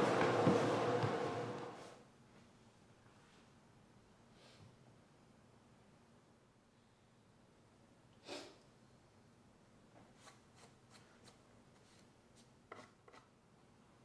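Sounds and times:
soft brushing sound: 0:10.0 - 0:13.3.

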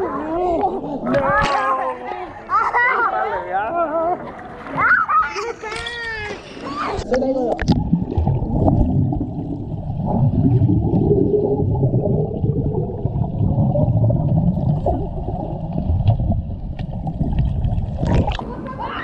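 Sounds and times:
muffled underwater churning and bubbling: 0:07.4 - 0:18.8.

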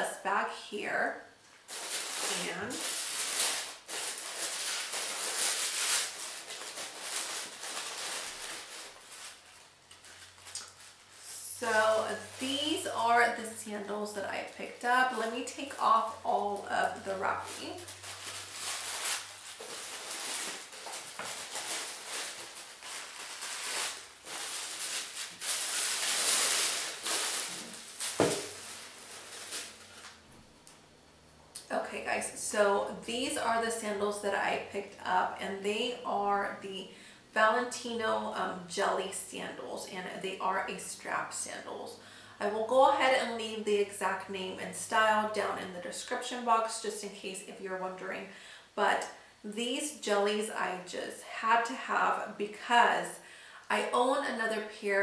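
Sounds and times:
tissue paper rustling: 0:01.7 - 0:13.1, 0:14.5 - 0:30.2.

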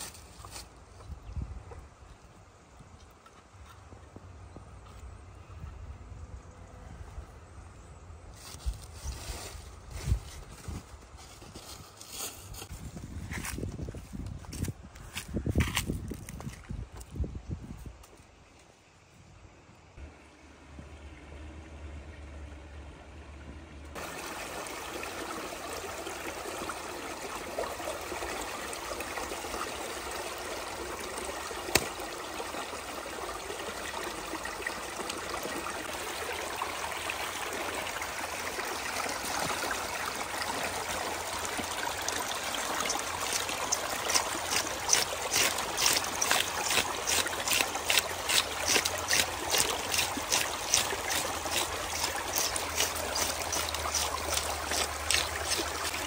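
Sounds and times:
stream of water trickling: 0:19.7 - 0:56.0.

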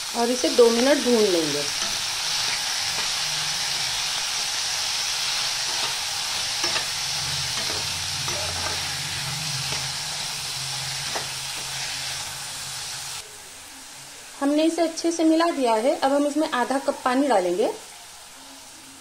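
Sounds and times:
food sizzling in hot oil: 0:00.0 - 0:19.0
spatula scraping pan: 0:01.6 - 0:04.6, 0:05.3 - 0:12.3.

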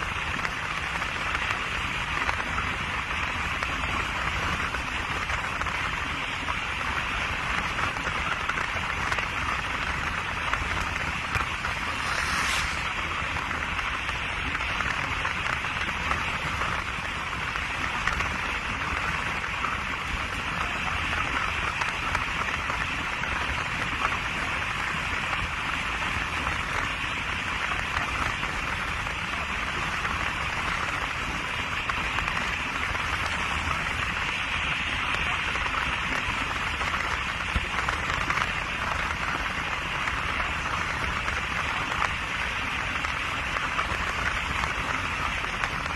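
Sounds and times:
rushing hiss of rain: 0:00.0 - 0:45.9
low rumble: 0:10.5 - 0:14.6.

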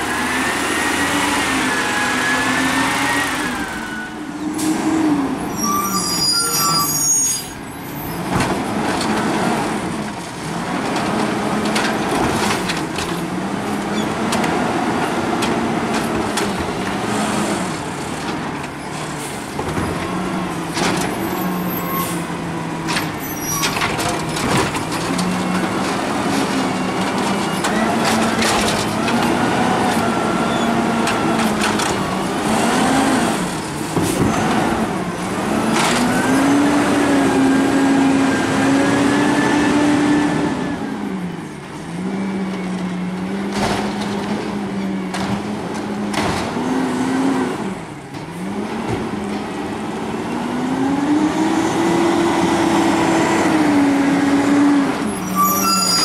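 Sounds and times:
garbage truck engine: 0:00.0 - 0:56.0
clanks and bangs of carts: 0:07.5 - 0:17.0, 0:17.7 - 0:37.0, 0:42.8 - 0:46.8.

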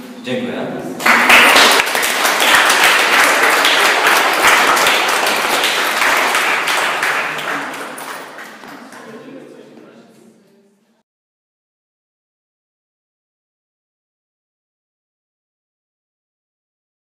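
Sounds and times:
audience applauding: 0:01.0 - 0:09.3.

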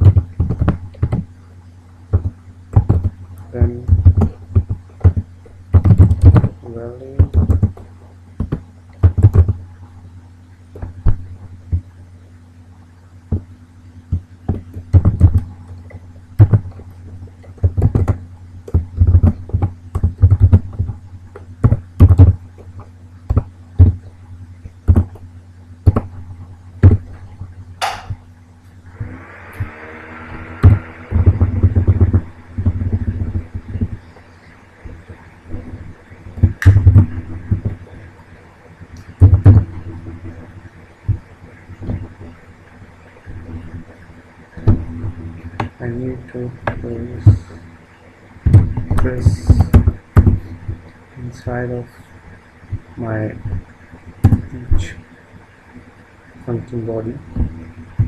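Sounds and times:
keyboard typing: 0:00.0 - 0:01.3, 0:02.1 - 0:06.6, 0:07.2 - 0:09.6, 0:14.1 - 0:15.5, 0:16.4 - 0:16.9, 0:17.5 - 0:24.0, 0:24.8 - 0:25.2, 0:30.6 - 0:34.2
low electrical hum: 0:00.0 - 0:58.0.

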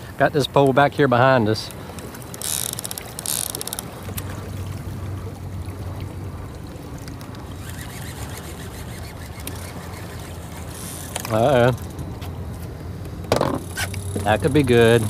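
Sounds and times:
water lapping against boat hull: 0:00.0 - 0:15.0
fishing reel clicking: 0:01.9 - 0:04.3, 0:07.1 - 0:12.0, 0:13.6 - 0:15.0.

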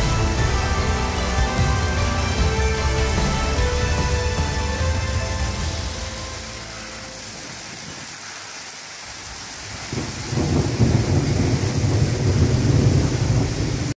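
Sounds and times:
steady rain hiss: 0:00.0 - 0:13.9
low rumble of thunder: 0:09.8 - 0:13.9.

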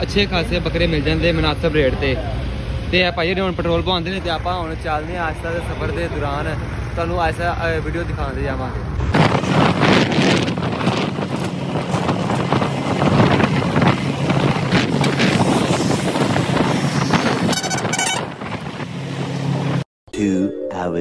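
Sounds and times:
vehicle driving on road: 0:00.0 - 0:19.8
wind buffeting microphone: 0:09.0 - 0:19.8
high two-part tone: 0:20.1 - 0:21.0.

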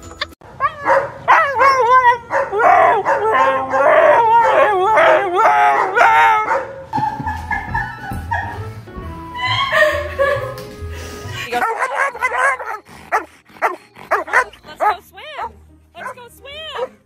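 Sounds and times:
husky howling: 0:00.6 - 0:08.6.

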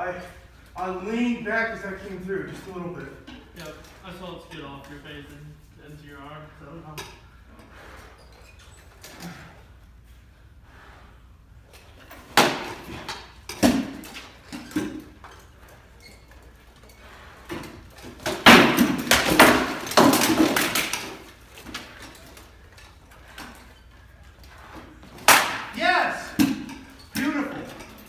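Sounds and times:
swords striking shields: 0:12.3 - 0:15.2, 0:18.2 - 0:21.2, 0:25.2 - 0:27.9.

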